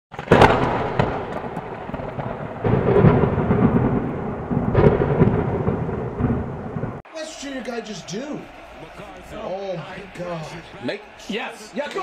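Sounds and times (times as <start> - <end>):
loud thunder crack: 0.1 - 7.0
rolling thunder: 0.1 - 7.0.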